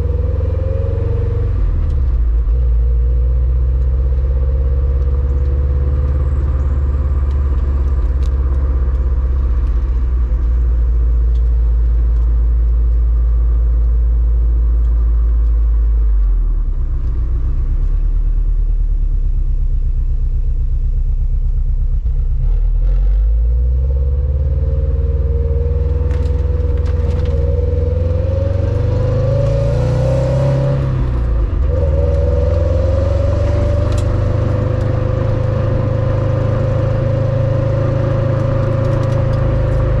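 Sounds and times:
car engine idling: 1.6s - 22.4s
engine revving: 22.0s - 40.0s.

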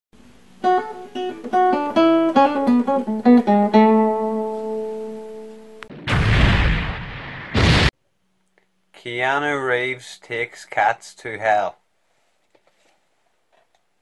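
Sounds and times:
plucked guitar phrase: 0.6s - 5.9s
loud burst of noise: 5.9s - 7.9s.

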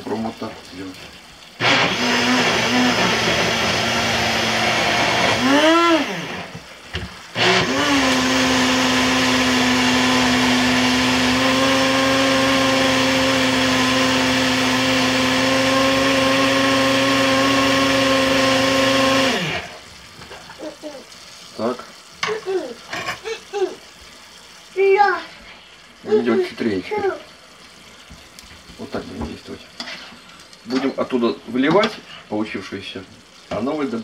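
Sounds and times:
blender motor running: 1.6s - 6.6s, 7.3s - 19.8s.

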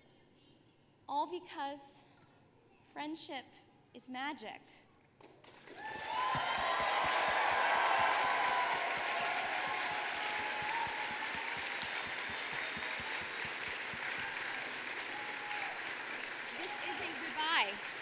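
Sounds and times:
audience applauding: 5.4s - 18.0s
audience cheering: 5.7s - 18.0s.

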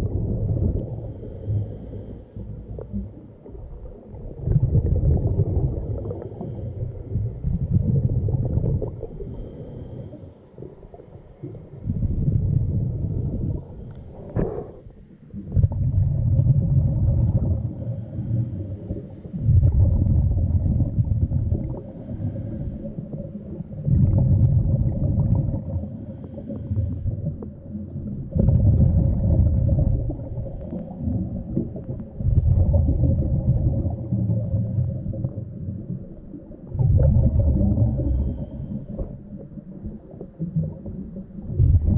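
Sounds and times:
faint steady hum: 0.0s - 41.9s
diver breathing underwater: 0.9s - 3.0s, 5.1s - 7.4s, 8.4s - 11.8s, 13.5s - 15.0s, 17.3s - 19.3s, 21.6s - 23.3s, 24.9s - 27.6s, 37.3s - 39.6s.

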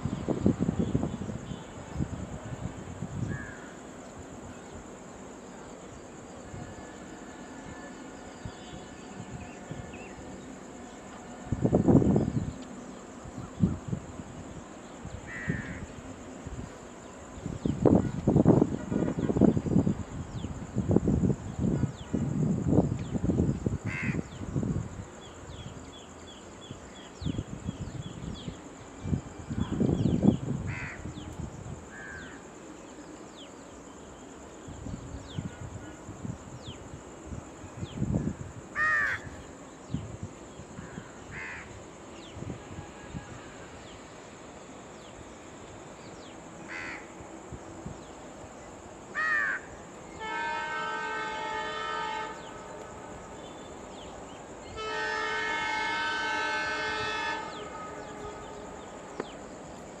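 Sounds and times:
locomotive horn blasts: 18.7s - 19.4s, 50.2s - 53.4s, 54.7s - 59.0s
crows cawing: 23.9s - 24.2s, 38.8s - 39.3s, 41.3s - 41.7s, 46.7s - 47.1s, 49.2s - 49.7s.

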